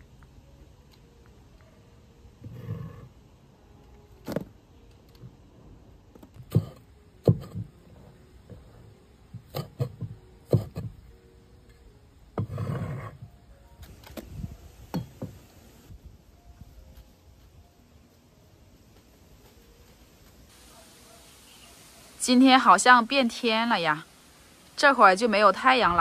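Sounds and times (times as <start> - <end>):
knife scraping board: 12.4 - 13.2.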